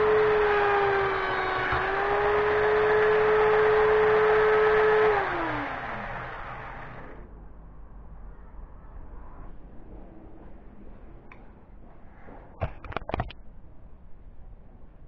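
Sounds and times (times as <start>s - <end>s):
belt sander whining: 0.0s - 7.2s
motor winding down: 0.0s - 7.2s.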